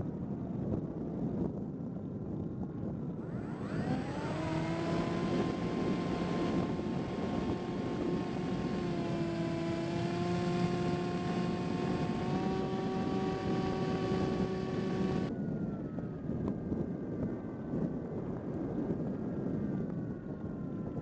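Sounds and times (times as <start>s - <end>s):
wind rush: 3.0s - 15.8s
electric motor and propeller whine: 3.1s - 15.4s.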